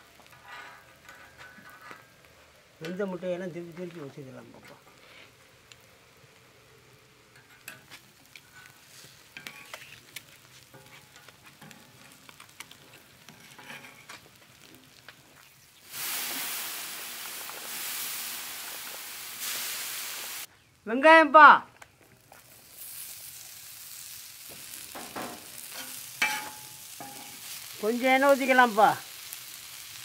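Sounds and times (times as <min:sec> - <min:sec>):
eggs sizzling in oil: 0:00.0 - 0:20.8, 0:22.0 - 0:30.0
metal spoons scraping griddle: 0:00.3 - 0:02.1, 0:07.4 - 0:14.2, 0:25.0 - 0:27.6
loud steam hiss: 0:15.8 - 0:20.5.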